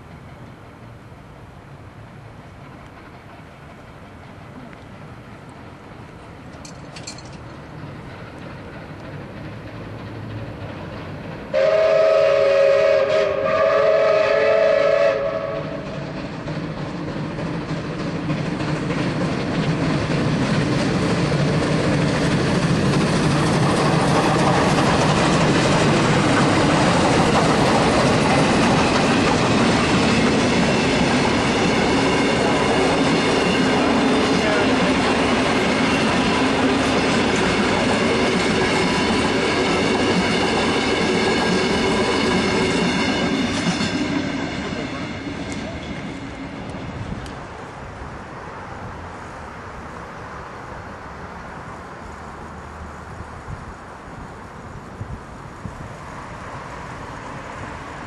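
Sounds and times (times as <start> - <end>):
steam train passing: 0.0 - 58.0
steam whistle chord: 11.5 - 15.8.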